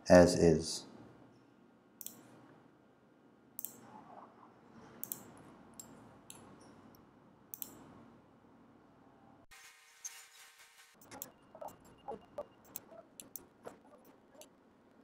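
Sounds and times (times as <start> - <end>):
computer mouse clicking: 2.0 - 2.2, 5.0 - 6.5, 7.5 - 7.8, 12.4 - 14.5.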